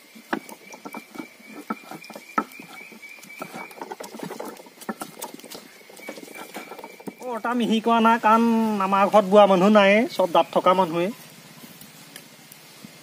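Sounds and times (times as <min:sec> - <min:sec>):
stone grinding on stone: 0:00.2 - 0:07.9.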